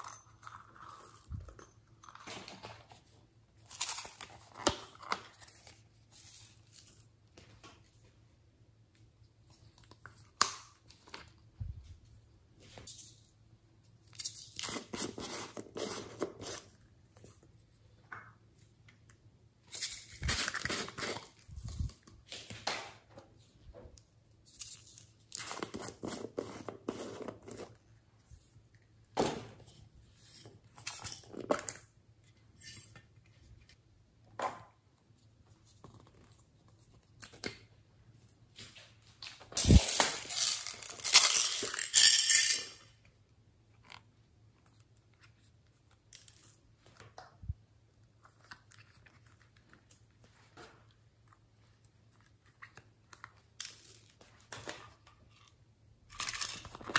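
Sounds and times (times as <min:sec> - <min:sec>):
plastic packaging tearing and crinkling: 0:19.9 - 0:22.0, 0:39.5 - 0:41.8.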